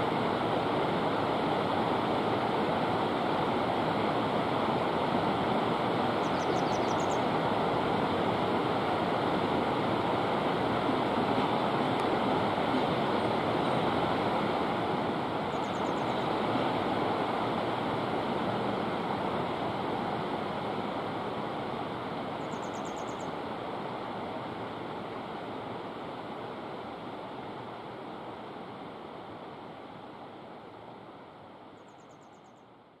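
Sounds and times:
running water rushing: 0.0 - 22.6
small bird trilling: 6.2 - 7.2, 22.5 - 23.3.

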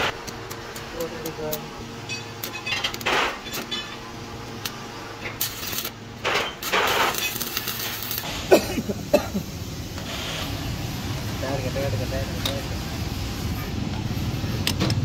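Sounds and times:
welding arc crackling and hissing: 0.0 - 15.0.

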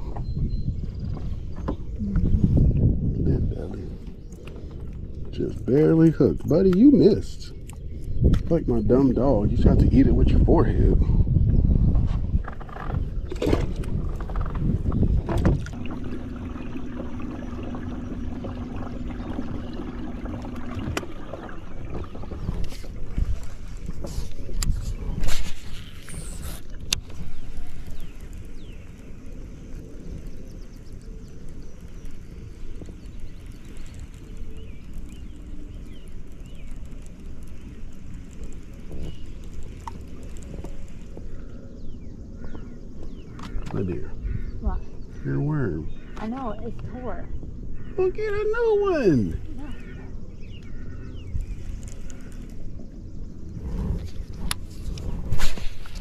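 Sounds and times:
wind buffeting microphone: 0.0 - 56.0
steady hum: 13.6 - 56.0.

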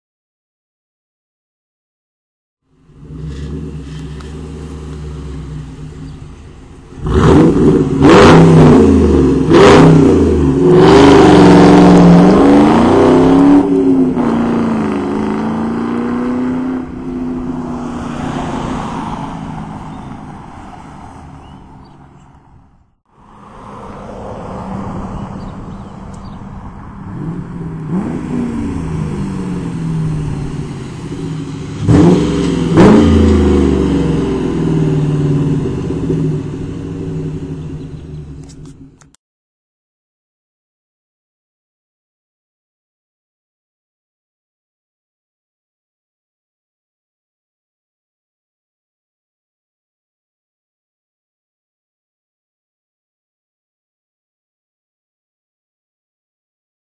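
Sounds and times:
car engine revving: 2.8 - 21.0, 23.4 - 38.8
car passing close: 2.9 - 22.6, 23.2 - 38.8.

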